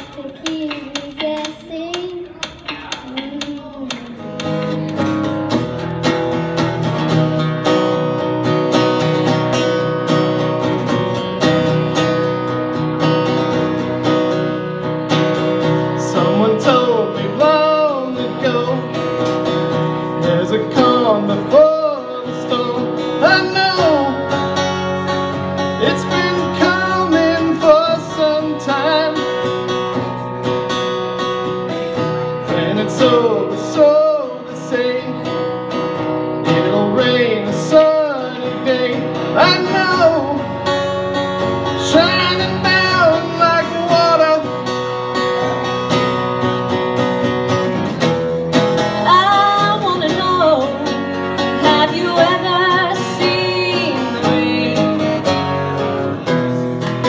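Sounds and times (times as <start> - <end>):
acoustic guitar strumming: 0.0 - 57.0
woman singing into microphone: 49.0 - 50.9, 51.5 - 55.2.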